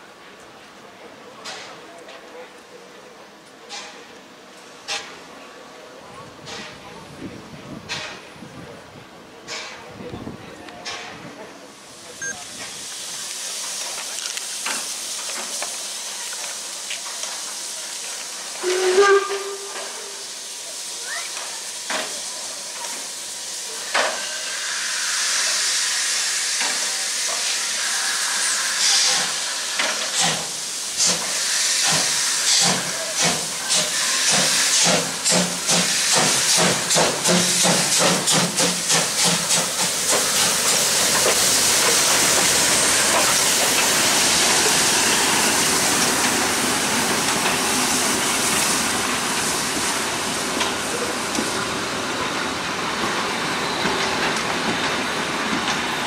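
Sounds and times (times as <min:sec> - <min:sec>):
steam hissing: 0:11.6 - 0:56.0
steam whistle blast: 0:18.6 - 0:20.3.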